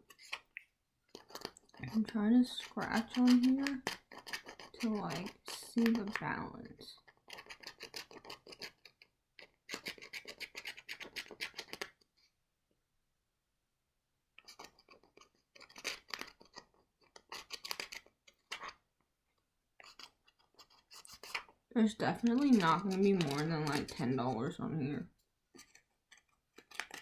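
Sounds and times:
card edge scratching coating: 1.1s - 6.2s, 7.0s - 12.0s, 14.4s - 18.8s, 19.8s - 24.2s, 25.5s - 27.0s.

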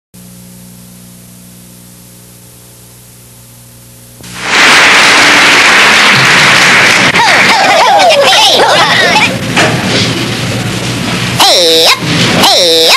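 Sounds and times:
low electrical hum: 0.2s - 12.9s
loud hiss of noise: 4.2s - 12.9s.

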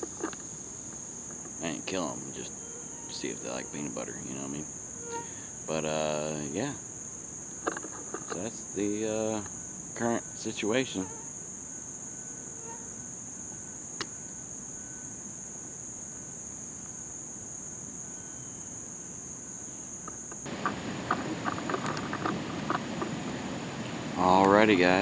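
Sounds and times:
insects droning: 0.0s - 25.0s.

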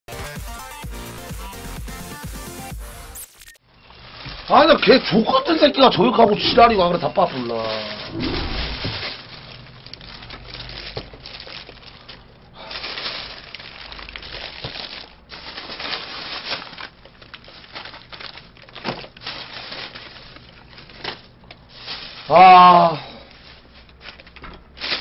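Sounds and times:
paper wrapper crinkling: 3.2s - 5.3s, 7.0s - 22.4s, 23.3s - 25.0s.

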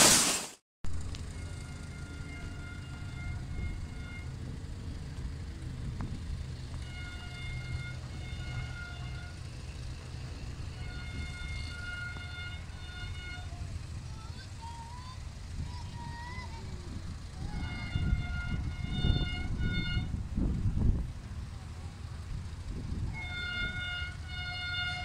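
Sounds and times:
distant locomotive horn blasts: 1.0s - 14.2s, 17.2s - 20.8s, 22.4s - 25.0s.

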